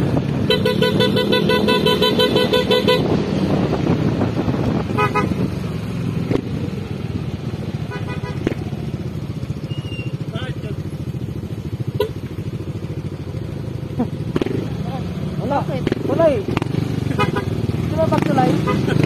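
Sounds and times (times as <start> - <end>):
motorcycle engines running: 0.0 - 19.0
motorcycle horn beeping: 0.4 - 3.2, 4.9 - 5.5, 7.9 - 8.6, 11.9 - 12.3, 17.1 - 17.6, 18.3 - 19.0.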